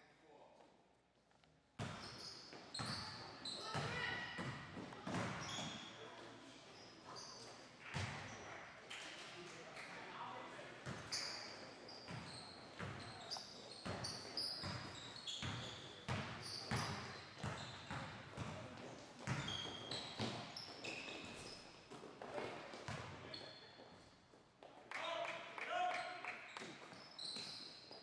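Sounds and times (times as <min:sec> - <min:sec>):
sneakers squeaking: 0:01.8 - 0:08.5, 0:10.8 - 0:24.1, 0:26.4 - 0:28.0
basketball bouncing on wooden floor: 0:19.2 - 0:19.5.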